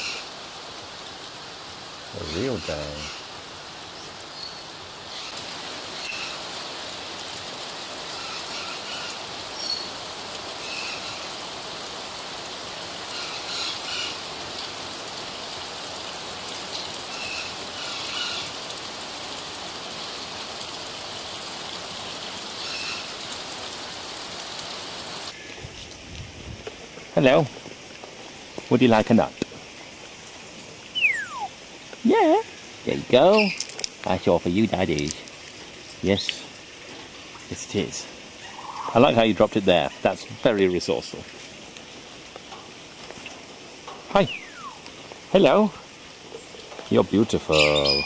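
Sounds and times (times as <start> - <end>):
steady rain falling: 0.0 - 48.0
short high bird calls: 30.9 - 31.6, 38.4 - 39.0, 44.2 - 44.8, 47.5 - 48.0.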